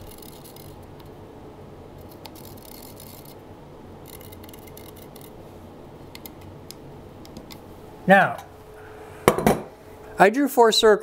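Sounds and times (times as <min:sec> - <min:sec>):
marker scratching on concrete: 0:02.0 - 0:03.4.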